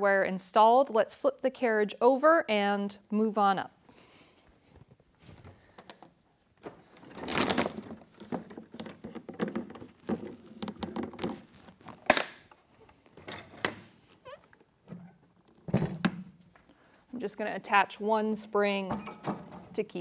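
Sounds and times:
handling rustle: 6.5s - 14.3s
metal hardware clattering and jingling: 6.9s - 10.0s, 13.2s - 13.9s, 19.0s - 19.6s.

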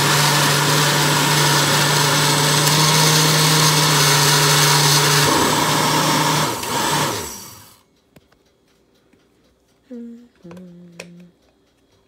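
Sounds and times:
blender running: 0.0s - 7.8s
motor winding down: 0.0s - 7.8s.

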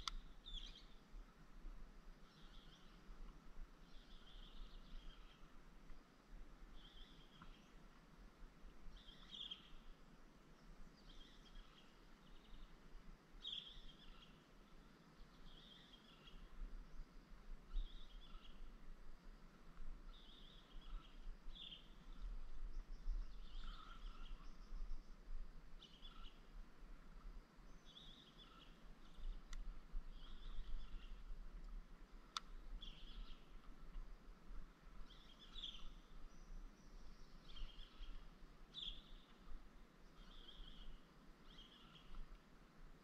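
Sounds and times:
sharp clicks: 0.0s - 0.3s
bird chirping: 0.0s - 1.0s, 2.2s - 3.0s, 3.8s - 5.6s, 6.7s - 7.8s, 8.9s - 9.9s, 13.4s - 17.1s, 17.7s - 18.7s, 20.1s - 25.2s, 25.8s - 26.5s, 27.7s - 31.3s, 32.3s - 33.7s, 35.0s - 42.3s
low steady rumble: 0.0s - 43.0s.

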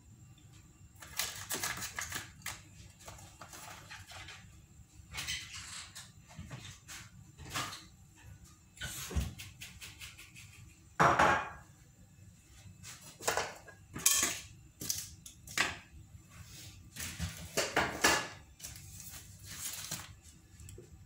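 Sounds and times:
dishes and utensils clattering: 5.1s - 7.9s, 13.2s - 14.5s.

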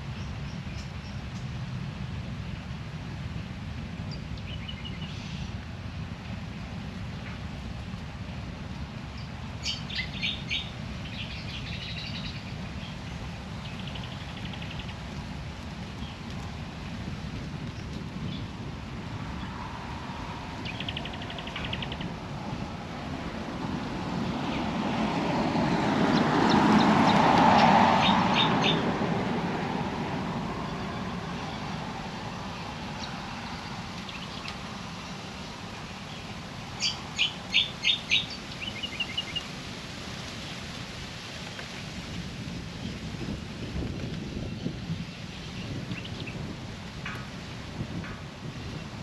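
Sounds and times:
outdoor ambience: 0.0s - 49.0s
birds chirping: 9.2s - 15.0s, 20.6s - 22.2s, 26.0s - 28.8s, 30.6s - 34.6s, 35.7s - 39.5s
broad swell of noise: 18.5s - 39.3s.

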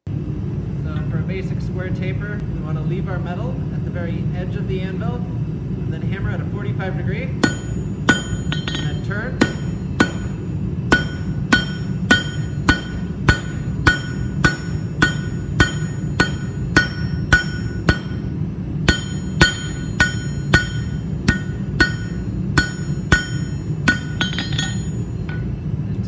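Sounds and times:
hammer striking hot metal on anvil: 7.4s - 25.6s
light metallic clinks: 23.2s - 25.5s.

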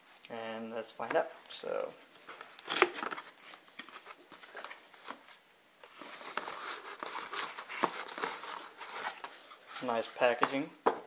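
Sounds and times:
packaging rustling and crinkling: 2.2s - 10.4s.

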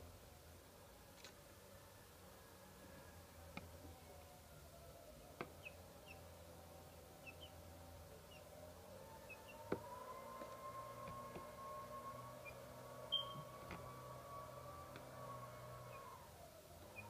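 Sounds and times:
faint steady whine: 0.0s - 17.0s
chicks peeping: 5.6s - 6.2s, 7.2s - 7.6s, 8.2s - 8.5s, 9.2s - 11.5s.

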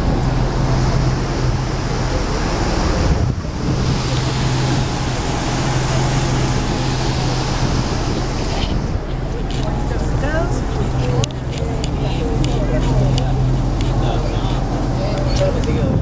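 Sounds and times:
boat engine drone: 0.0s - 16.0s
water rushing past hull: 0.0s - 16.0s
wind buffeting microphone: 0.0s - 16.0s.

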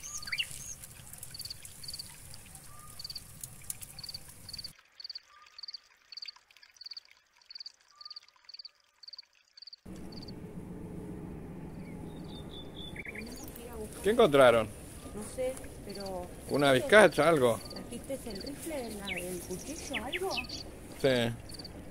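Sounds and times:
cricket chirping: 2.9s - 5.8s, 6.8s - 10.4s, 15.7s - 18.7s, 19.8s - 21.9s
low rushing background: 9.9s - 21.9s.

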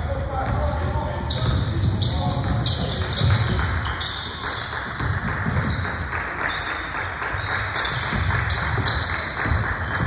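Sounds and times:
sneakers squeaking: 0.0s - 10.0s
basketball bouncing on floor: 0.4s - 6.0s, 7.7s - 10.0s.

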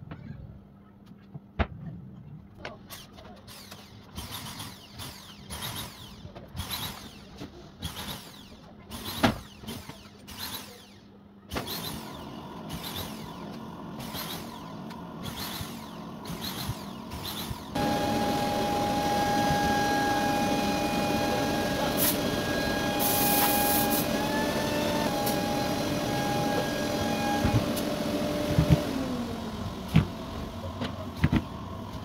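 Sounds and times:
short mechanical bursts: 2.8s - 29.5s
woodworking machine running: 11.6s - 32.0s.

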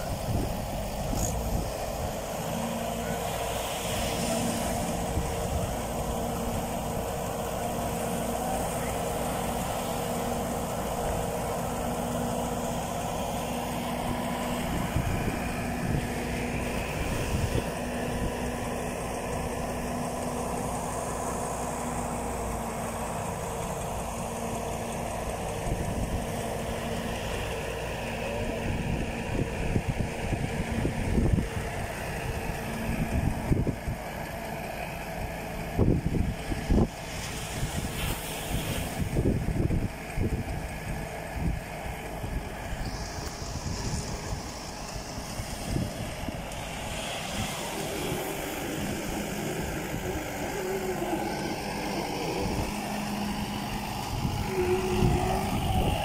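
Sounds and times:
wind buffeting microphone: 0.0s - 4.0s, 4.6s - 56.0s
surf washing: 0.0s - 24.8s, 36.7s - 40.2s, 42.2s - 56.0s
engine idling: 0.0s - 56.0s.

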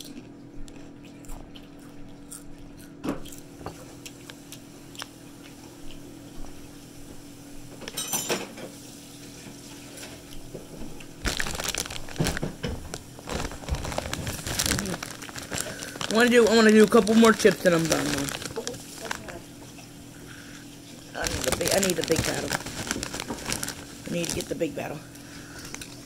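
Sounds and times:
steady low hum: 10.2s - 26.0s
chip bag crinkling: 11.1s - 19.4s, 20.9s - 26.0s.

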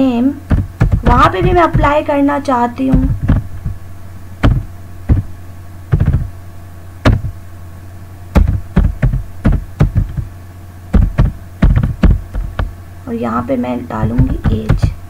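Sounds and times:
steady low hum: 0.0s - 15.0s
keyboard keys typing: 5.9s - 6.3s, 11.0s - 12.7s.

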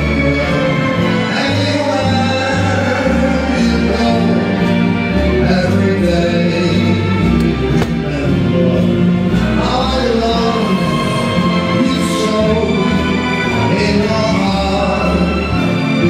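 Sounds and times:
dance music with singing: 0.0s - 16.0s.

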